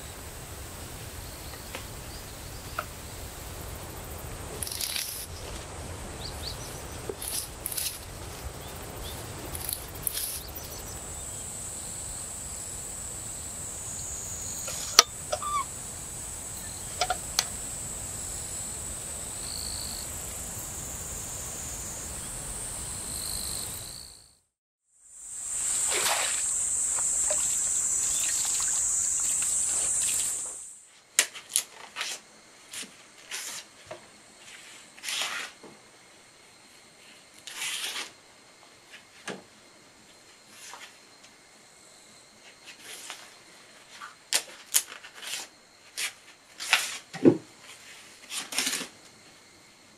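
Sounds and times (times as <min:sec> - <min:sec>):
insects chirping: 0:00.0 - 0:24.4, 0:25.0 - 0:49.9
plant stems rustling in hands: 0:03.6 - 0:11.1.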